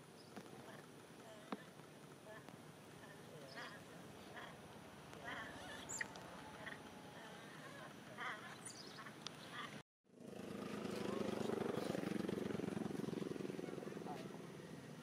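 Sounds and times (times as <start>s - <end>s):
engine with fast flutter: 0.0s - 15.0s
animal calls: 0.4s - 9.8s.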